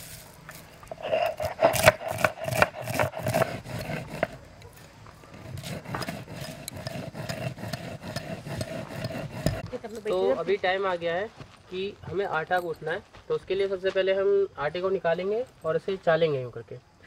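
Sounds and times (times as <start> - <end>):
stone grinding on stone slab: 0.9 - 4.5, 5.3 - 9.8.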